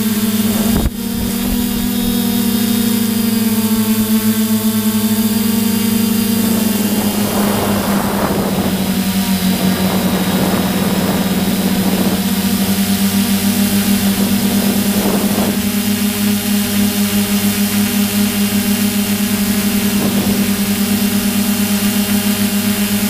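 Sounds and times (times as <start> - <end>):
drone propellers humming: 0.0 - 23.0
rushing noise: 4.9 - 17.0.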